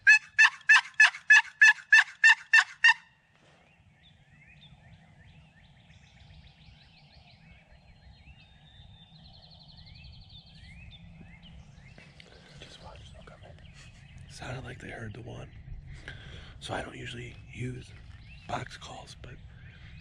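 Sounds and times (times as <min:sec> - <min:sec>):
turkey gobbling: 0:00.0 - 0:03.0
songbird chirps and trill: 0:03.6 - 0:16.0, 0:16.6 - 0:20.0
low steady rumble: 0:03.6 - 0:20.0.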